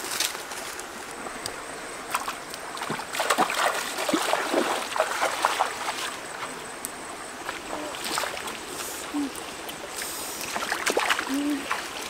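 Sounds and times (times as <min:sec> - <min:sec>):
shallow stream rushing: 0:00.0 - 0:12.0
feet splashing through water: 0:02.1 - 0:06.5, 0:07.4 - 0:08.9, 0:09.8 - 0:12.0.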